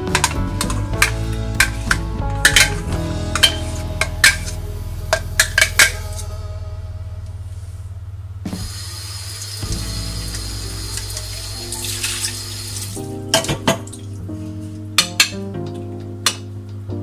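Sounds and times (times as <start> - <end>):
tap water running into sink: 8.6 - 14.0.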